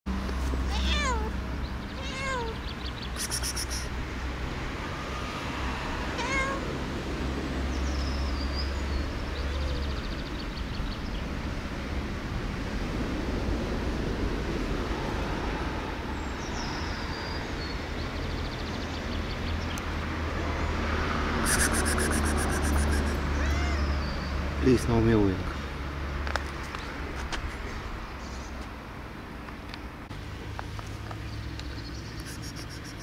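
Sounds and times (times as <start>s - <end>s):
cat meowing: 0.7s - 1.4s, 2.0s - 2.6s, 6.2s - 6.7s, 21.4s - 24.2s.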